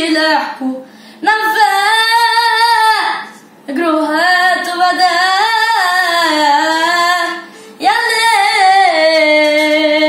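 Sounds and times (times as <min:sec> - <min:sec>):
singer breathing: 0:00.8 - 0:01.2, 0:07.5 - 0:07.8.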